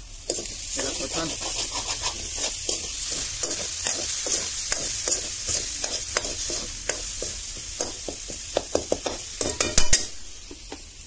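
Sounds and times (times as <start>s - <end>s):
oil sizzling: 0.0s - 11.0s
metal ladle scraping a pan: 0.3s - 7.1s.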